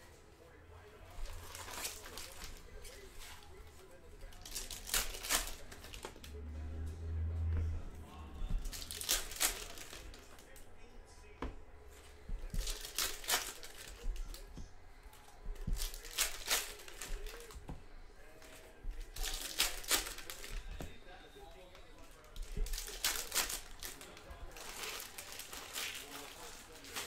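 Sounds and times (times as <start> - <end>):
foil wrappers crinkling and tearing: 1.1 - 6.4, 8.6 - 10.7, 12.4 - 17.6, 18.2 - 21.0, 21.6 - 27.0.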